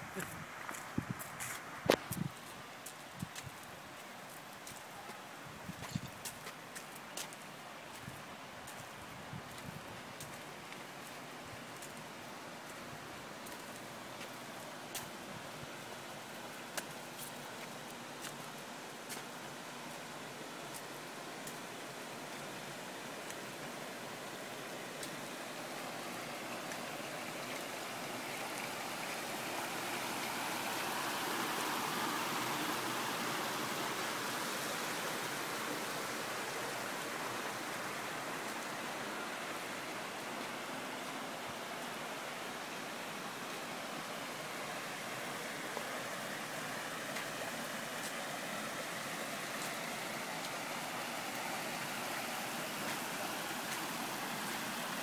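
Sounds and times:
waterfall rushing splash: 25.1s - 55.0s.

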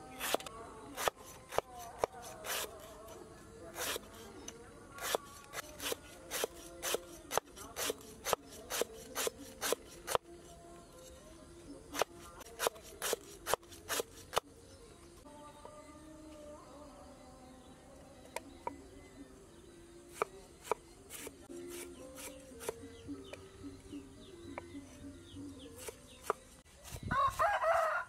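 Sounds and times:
knife chopping on wooden board: 20.1s - 22.8s, 25.8s - 27.0s.

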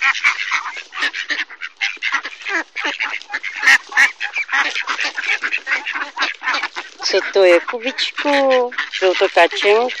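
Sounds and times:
ducks quacking: 0.0s - 10.0s.

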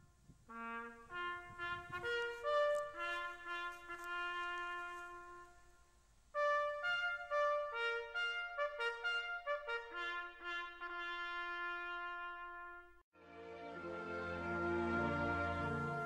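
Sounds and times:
solo trumpet call: 0.5s - 13.0s.

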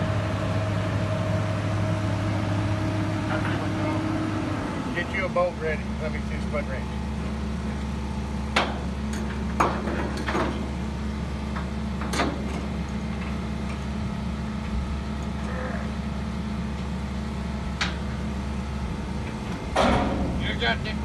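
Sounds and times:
diesel engine idling: 0.0s - 21.0s
metal clanks: 19.7s - 21.0s.

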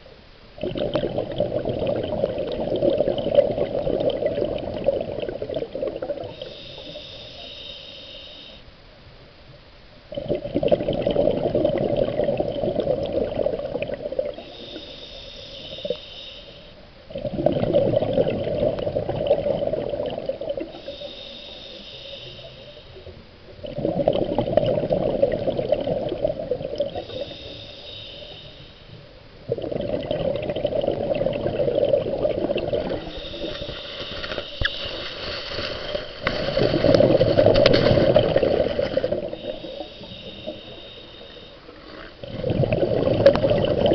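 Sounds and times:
rush of exhaled bubbles: 0.6s - 7.0s, 10.1s - 14.8s, 17.1s - 21.0s, 23.0s - 27.6s, 29.4s - 41.0s, 42.2s - 43.9s
regulator hiss: 6.2s - 8.8s, 14.4s - 17.0s, 20.6s - 23.2s, 26.9s - 29.0s, 32.9s - 37.2s, 38.7s - 42.1s.

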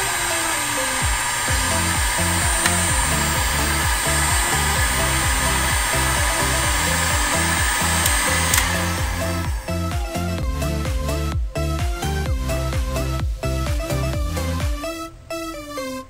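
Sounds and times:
heat gun fan hissing and whining: 0.0s - 10.4s
electronic music with bass line: 0.0s - 16.0s
click: 2.6s - 3.0s, 8.0s - 8.8s.

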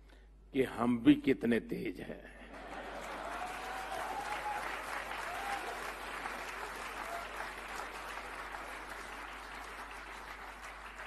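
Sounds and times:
audience applauding: 2.8s - 11.0s.

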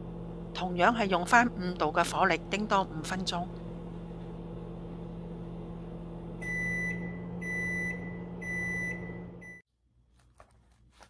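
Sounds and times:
microwave oven humming: 0.0s - 10.1s
microwave beeps: 6.4s - 9.6s.

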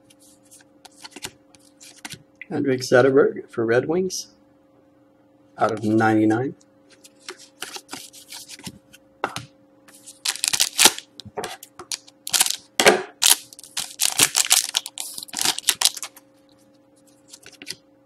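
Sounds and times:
wrapper crinkling: 10.1s - 11.1s, 11.9s - 16.2s.

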